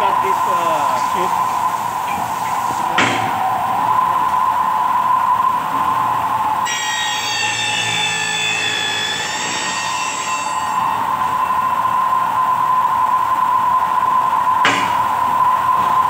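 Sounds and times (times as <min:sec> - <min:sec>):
milling machine whine: 0:00.0 - 0:16.0
cutter screeching on metal: 0:06.6 - 0:11.0.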